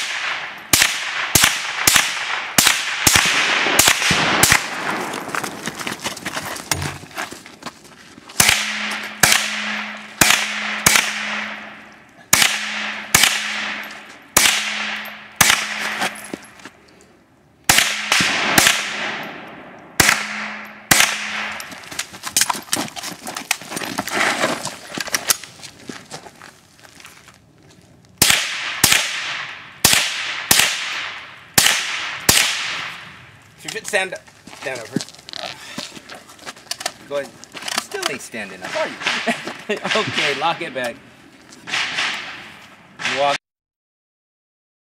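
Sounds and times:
rifle shots with echo: 0.0s - 5.3s, 8.4s - 16.2s, 17.7s - 21.7s, 28.2s - 33.2s, 41.6s - 43.4s.

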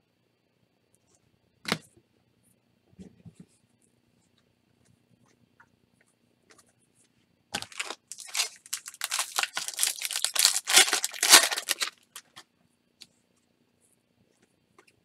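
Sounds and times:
foil wrapper tearing and crinkling: 7.6s - 12.4s.

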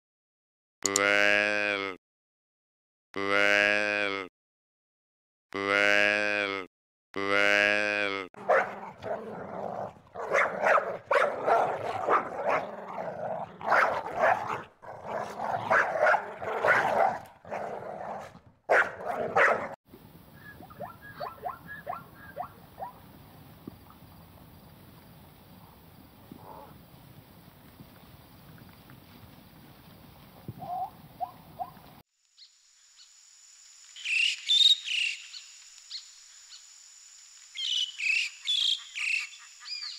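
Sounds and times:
dog barking: 8.4s - 9.6s, 10.2s - 19.8s, 20.8s - 23.0s.

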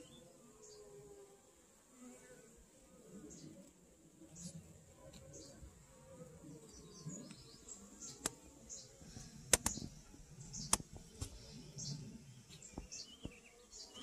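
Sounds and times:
sharp clicks: 9.5s - 9.9s, 10.6s - 11.3s.

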